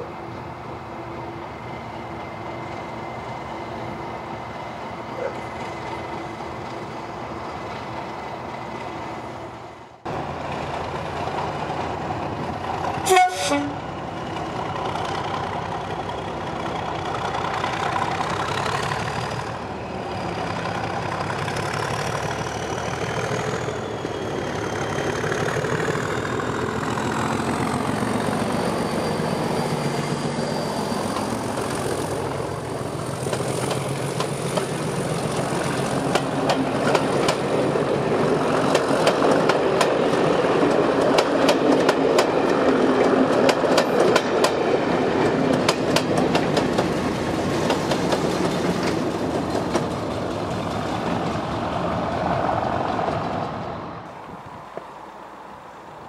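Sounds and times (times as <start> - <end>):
diesel locomotive engine whining: 0.0 - 56.0
train horn toot: 13.0 - 13.8
train wheels clattering over rail joints: 30.9 - 37.7, 38.6 - 51.8.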